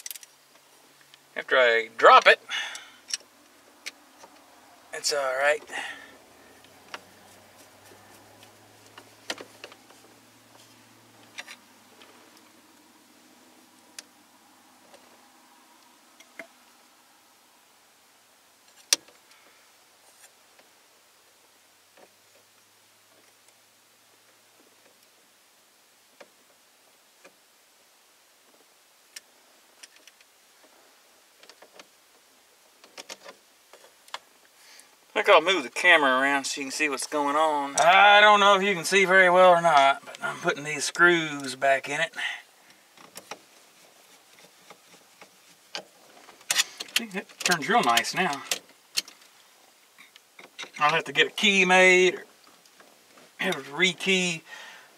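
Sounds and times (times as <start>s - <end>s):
small plastic parts clicking: 0.0s - 0.3s.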